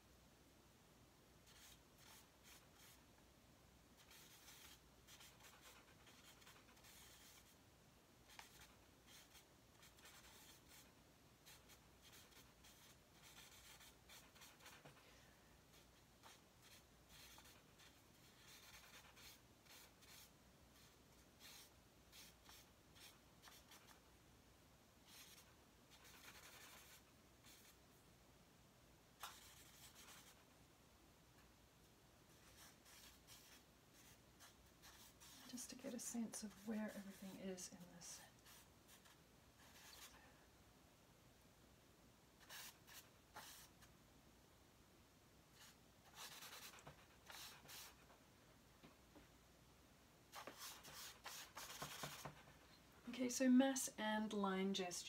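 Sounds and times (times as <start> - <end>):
charcoal scratching on paper: 4.0 - 7.6, 8.3 - 15.0, 15.7 - 24.0, 25.1 - 27.8, 29.2 - 30.4, 32.4 - 40.2, 42.4 - 43.7, 45.6 - 48.0, 50.3 - 52.4.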